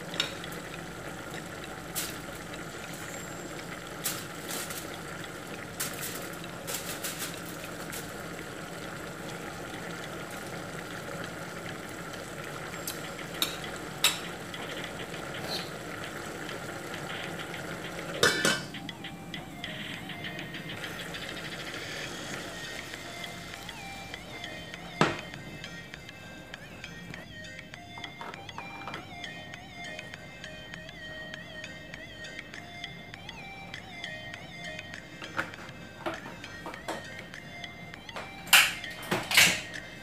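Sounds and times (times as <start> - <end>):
food bubbling in a pot: 0.0 - 26.6
glass lid clattering: 18.2 - 18.8.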